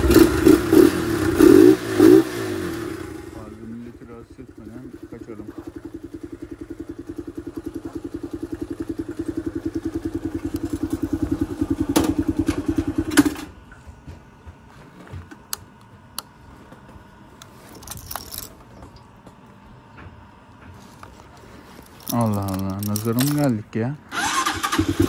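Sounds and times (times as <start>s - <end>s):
motorcycle engine idling: 2.3s - 13.6s
keys jingling: 17.6s - 18.9s, 21.7s - 23.5s.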